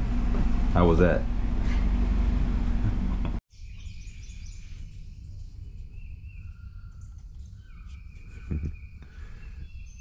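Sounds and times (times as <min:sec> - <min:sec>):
low steady rumble: 0:00.0 - 0:03.4
birds whistling and chirping: 0:03.5 - 0:10.0.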